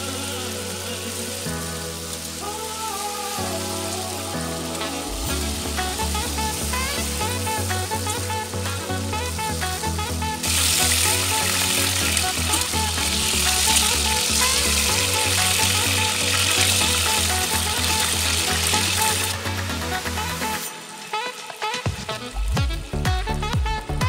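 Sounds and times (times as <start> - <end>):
background music: 0.0 - 24.0
beef sizzling in hot oil: 5.9 - 21.8.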